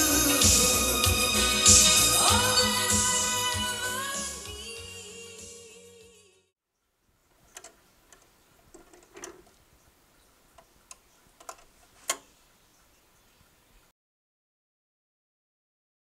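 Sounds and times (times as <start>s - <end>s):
soft hiss: 6.8s - 13.9s.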